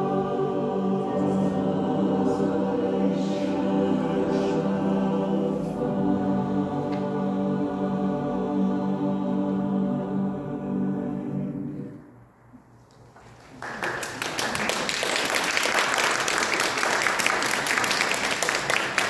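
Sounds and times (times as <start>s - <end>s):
choir holding a chord: 0.0s - 12.2s
small group applauding: 13.2s - 19.0s.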